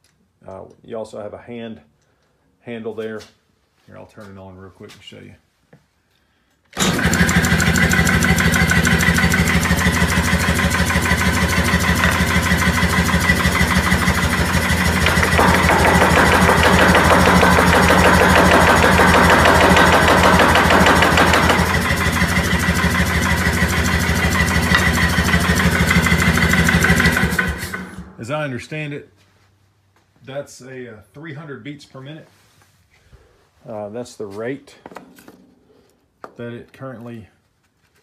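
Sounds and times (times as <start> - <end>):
power hammer rapid beat: 8.1 - 27.7.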